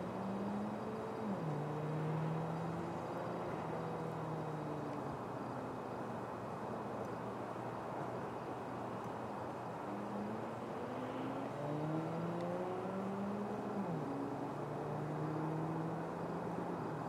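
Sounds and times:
vehicle engine: 0.0 - 5.0, 9.8 - 17.0
traffic hum: 0.0 - 17.0.

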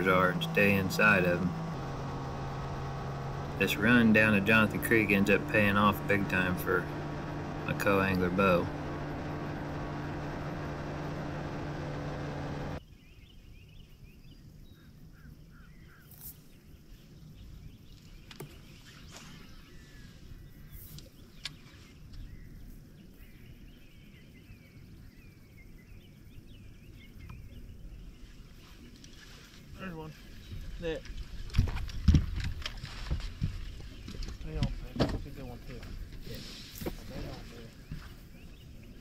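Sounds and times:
outboard motor running: 0.0 - 12.8
faint bird chirps: 12.8 - 30.7
wind noise: 30.3 - 34.8.

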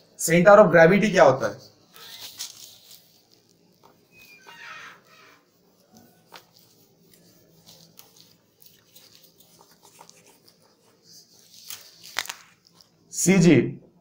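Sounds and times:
duster rubbing on whiteboard: 1.5 - 12.1.

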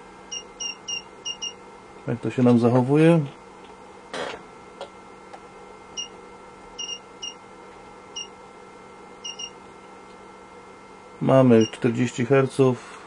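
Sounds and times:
faint steady hum: 0.0 - 13.0
short electronic beeps: 6.8 - 7.4, 9.2 - 9.6.

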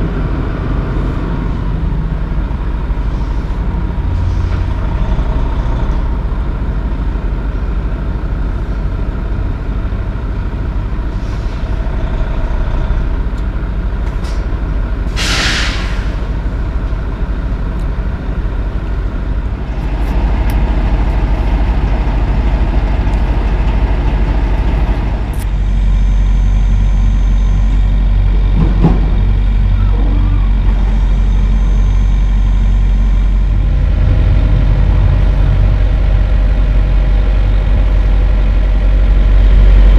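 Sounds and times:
truck diesel engine: 0.0 - 39.9
air brake hiss: 11.1 - 11.6, 15.1 - 16.3.

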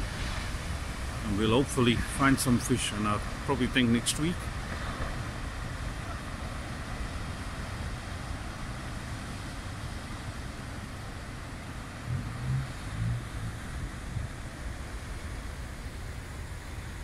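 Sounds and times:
heavy surf breaking on rocks: 0.0 - 17.0
deep rumble: 11.8 - 14.7.

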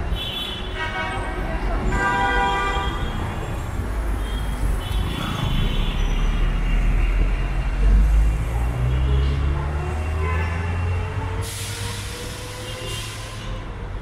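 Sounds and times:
road traffic rumble: 0.0 - 14.0
heavy vehicle engine drone: 3.0 - 14.0.

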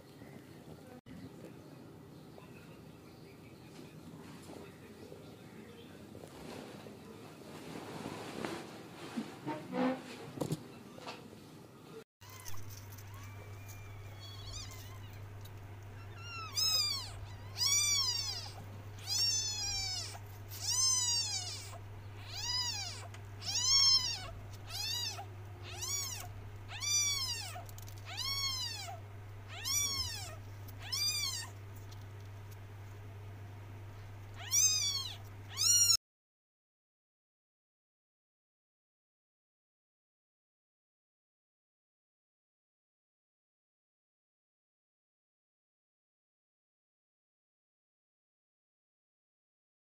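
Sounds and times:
steady low hum: 10.9 - 36.0
kittens mewing: 12.2 - 31.6, 34.3 - 36.0.

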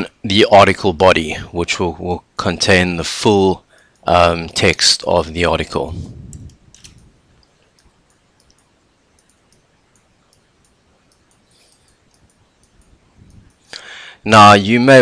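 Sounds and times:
background hiss: 0.0 - 15.0
computer mouse clicks: 6.3 - 13.8.

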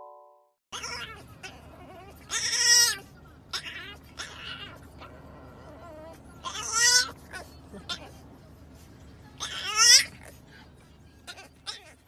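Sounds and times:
puppy whining: 0.7 - 8.3, 9.4 - 10.5, 11.2 - 12.0.

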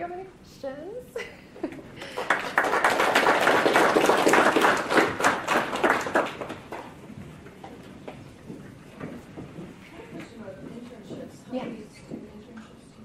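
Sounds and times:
audience applauding: 2.0 - 7.0.

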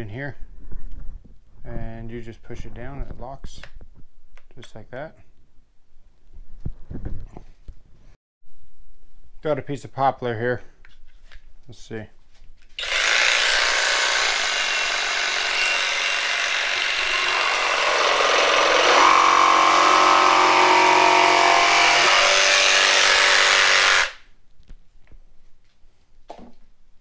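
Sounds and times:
jigsaw cutting wood: 12.8 - 24.2.

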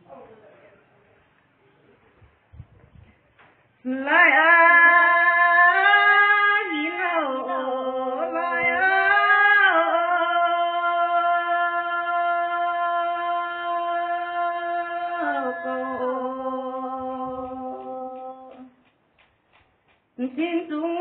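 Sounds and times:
woman singing unaccompanied: 3.8 - 18.8, 20.2 - 21.0.

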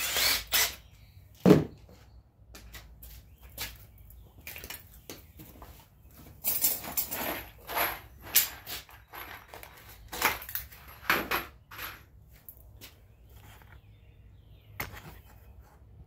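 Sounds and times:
metal hardware clinking and rattling: 6.4 - 12.6.

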